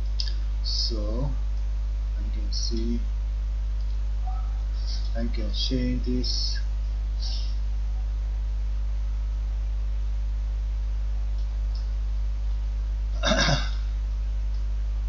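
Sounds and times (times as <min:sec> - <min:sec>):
low electrical hum: 0:00.0 - 0:15.0
person grunting: 0:13.2 - 0:13.8.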